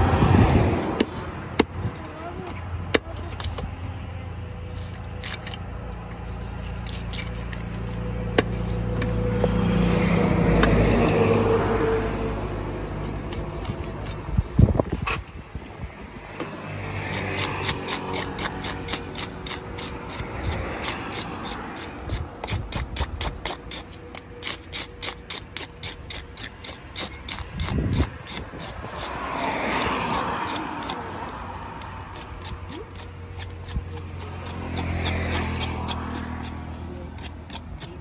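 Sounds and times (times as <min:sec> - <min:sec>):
knife scraping fish scales: 0:04.4 - 0:10.2, 0:11.0 - 0:14.3, 0:16.9 - 0:38.0.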